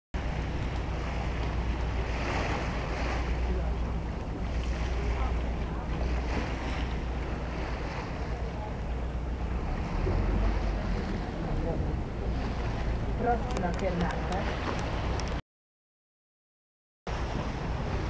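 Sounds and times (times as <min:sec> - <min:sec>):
boat engine rumble: 0:00.2 - 0:15.4, 0:17.1 - 0:18.0
water rushing past hull: 0:00.2 - 0:15.4, 0:17.1 - 0:18.0.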